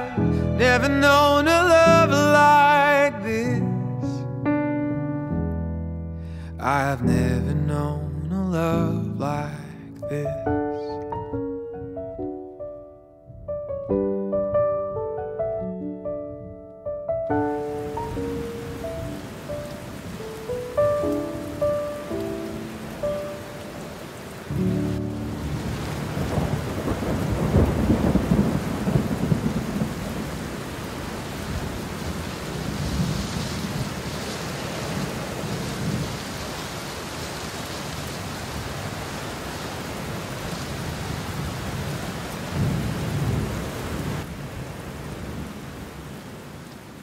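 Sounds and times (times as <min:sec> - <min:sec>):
heavy rain: 0:00.0 - 0:04.1, 0:17.3 - 0:47.0
rolling thunder: 0:24.6 - 0:36.8, 0:40.5 - 0:45.6.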